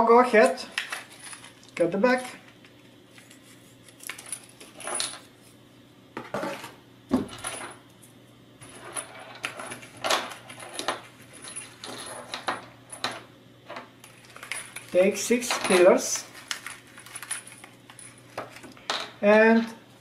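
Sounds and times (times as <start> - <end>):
metal parts clinking: 0.3 - 1.8, 8.8 - 19.2
metal parts clattering on table: 4.0 - 5.2, 8.6 - 19.2
plastic bag rustling: 15.9 - 18.8.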